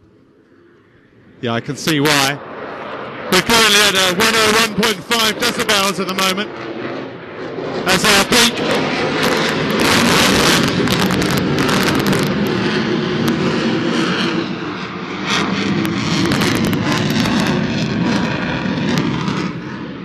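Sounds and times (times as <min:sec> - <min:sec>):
fighter jet roaring with crackle: 0:00.0 - 0:20.0.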